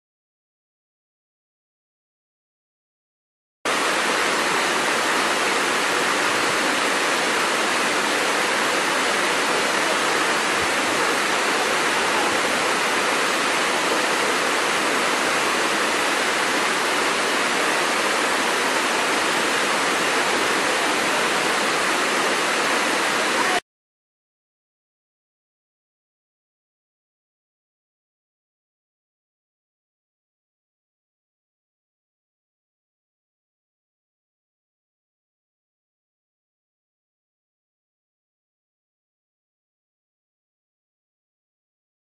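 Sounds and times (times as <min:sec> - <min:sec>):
waterfall rushing over rocks: 0:03.7 - 0:23.6.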